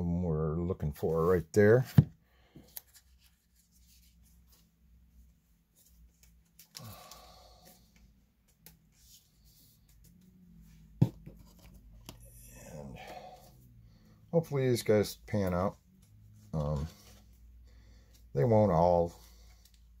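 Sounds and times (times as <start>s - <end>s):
cards rustling and clicking: 2.6s - 4.7s, 5.7s - 12.4s, 15.3s - 17.4s.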